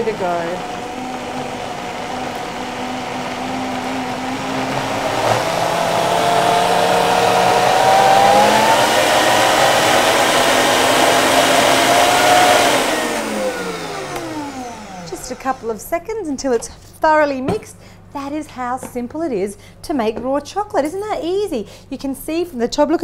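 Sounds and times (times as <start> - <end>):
blender motor whining: 0.0 - 15.9.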